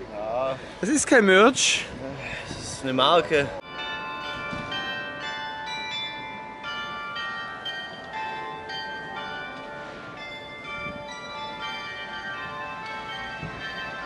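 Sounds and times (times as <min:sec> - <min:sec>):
church bells ringing: 0:03.0 - 0:14.0.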